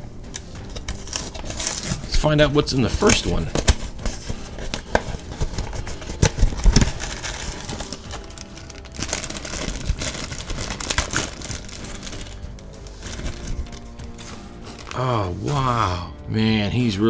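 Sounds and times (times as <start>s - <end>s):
foil bag crinkling: 0.7s - 2.2s, 2.9s - 15.3s.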